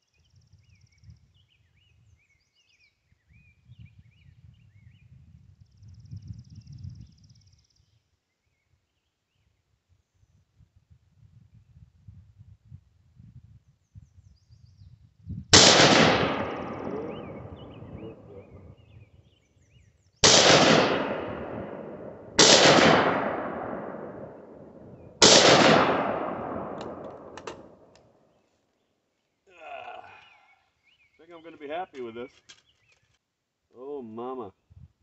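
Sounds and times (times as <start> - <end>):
rifle shots with echo: 15.5 - 18.6, 20.2 - 28.0.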